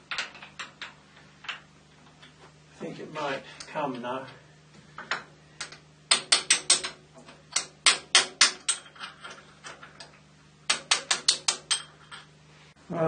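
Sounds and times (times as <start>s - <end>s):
metal-on-metal taps: 5.0s - 12.3s.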